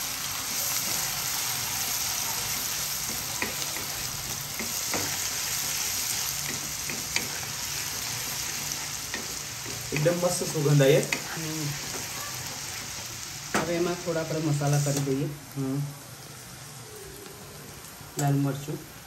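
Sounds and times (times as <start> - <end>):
vegetables sizzling in hot oil: 0.0 - 19.0.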